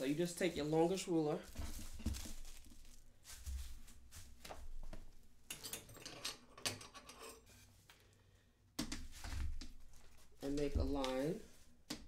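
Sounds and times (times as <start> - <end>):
paper rustling: 0.0 - 4.7.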